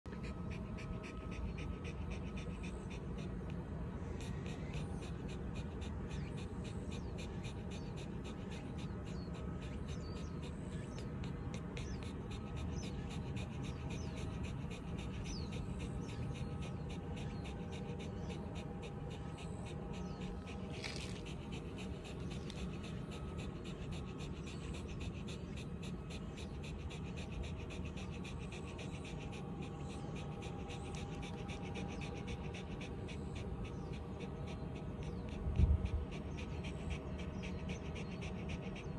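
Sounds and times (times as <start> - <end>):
dog panting: 0.0 - 38.9.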